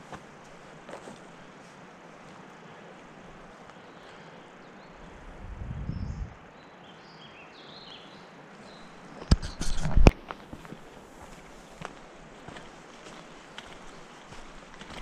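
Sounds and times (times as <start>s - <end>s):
low rumble: 5.2s - 6.4s.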